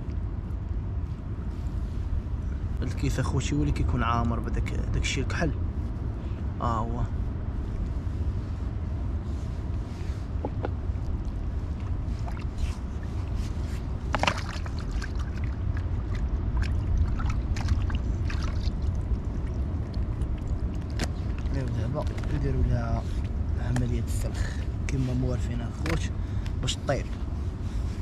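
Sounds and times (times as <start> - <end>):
steady low rumble: 0.0 - 28.0
water sloshing in a plastic bucket: 14.0 - 22.4
small splashes: 14.1 - 21.7.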